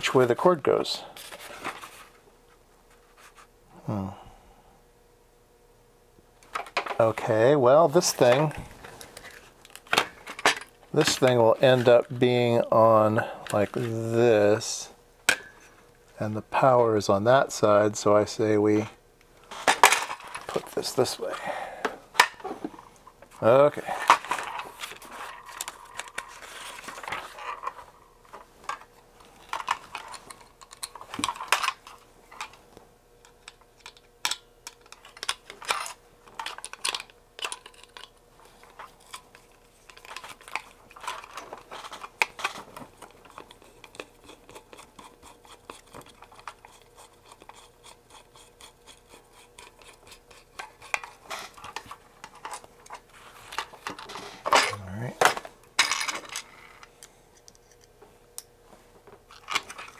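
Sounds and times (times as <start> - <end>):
faint steady hum: 0.0 - 59.9
plastic parts and screws rattling: 24.0 - 32.6, 33.2 - 47.6, 59.3 - 59.9.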